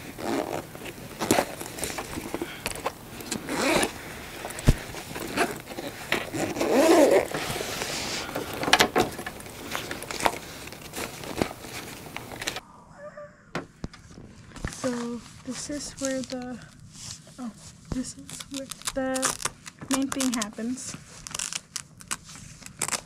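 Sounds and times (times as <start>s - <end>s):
bag rustling: 0.0s - 12.6s
zipper rasping: 0.0s - 12.6s.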